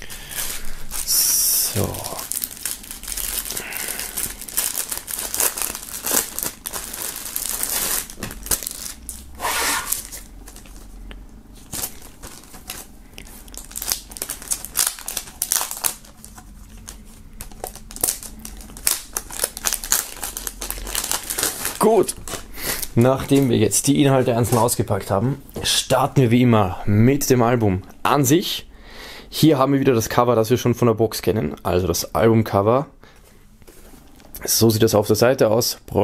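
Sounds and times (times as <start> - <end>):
plastic film crinkling: 0.0 - 25.2.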